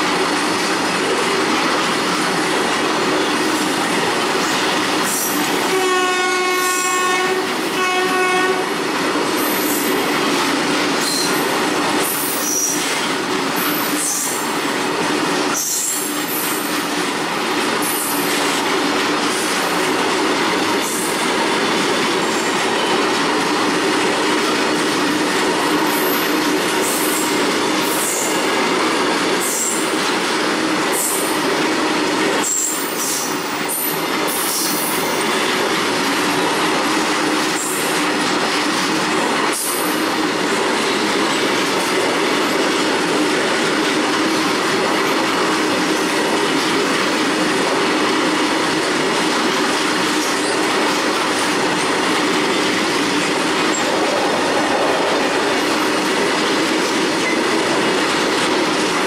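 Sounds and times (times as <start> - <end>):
train wheels rumbling on rail: 0.0 - 59.0
train horn: 5.6 - 8.8.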